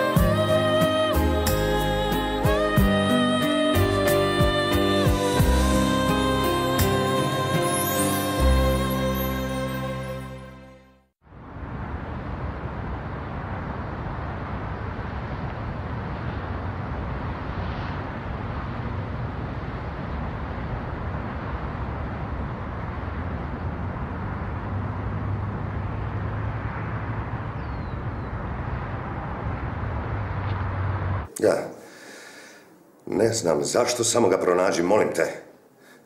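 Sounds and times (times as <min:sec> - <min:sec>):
low traffic hum: 0:11.2 - 0:34.7
cars passing: 0:11.3 - 0:31.3.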